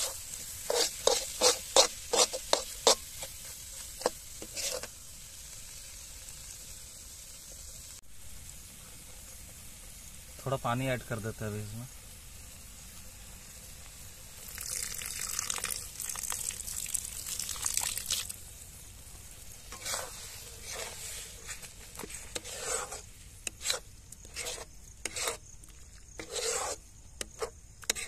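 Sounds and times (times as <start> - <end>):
spoon scraping cooking pan: 0.0 - 5.0, 19.7 - 28.0.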